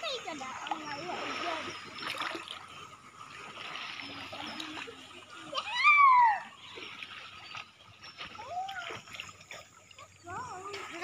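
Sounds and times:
water splashing and lapping: 0:00.0 - 0:11.0
high-pitched shout: 0:05.5 - 0:06.5.

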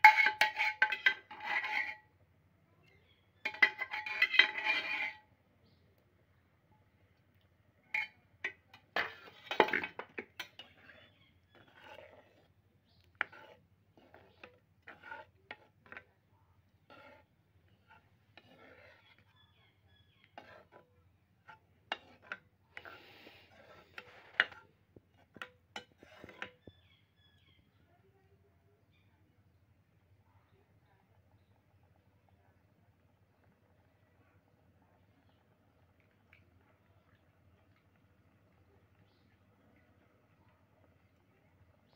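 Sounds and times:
metal spoon clinking in pan: 0:00.0 - 0:02.0, 0:03.4 - 0:05.2, 0:08.0 - 0:11.9
spoon scraping pan: 0:00.0 - 0:02.1, 0:03.4 - 0:05.8, 0:07.8 - 0:27.5.

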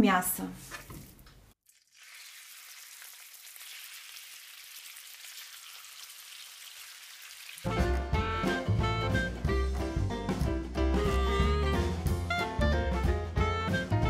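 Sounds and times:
meat sizzling in hot oil: 0:01.6 - 0:07.9
loud music: 0:07.7 - 0:14.0.

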